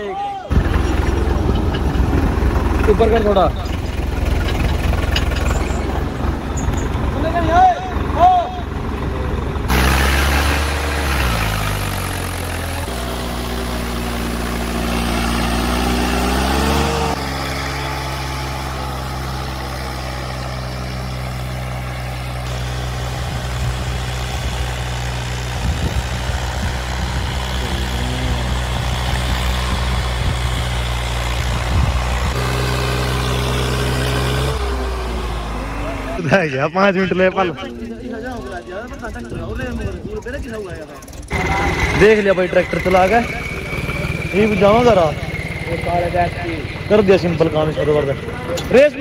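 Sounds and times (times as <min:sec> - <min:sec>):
tractor diesel engine under load: 0:00.0 - 0:49.0.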